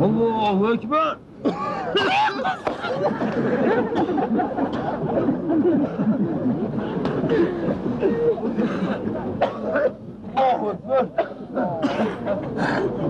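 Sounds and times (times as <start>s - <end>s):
men laughing: 1.6s - 8.8s
men talking: 9.4s - 12.7s.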